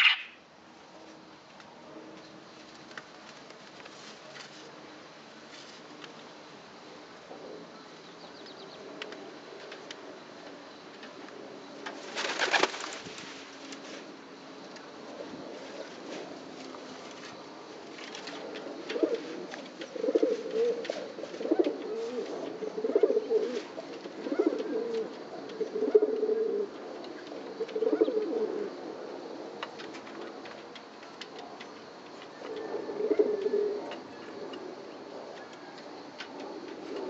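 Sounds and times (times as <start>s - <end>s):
bird cooing: 0.0s - 0.4s, 18.3s - 26.8s, 27.5s - 28.8s, 32.3s - 34.8s.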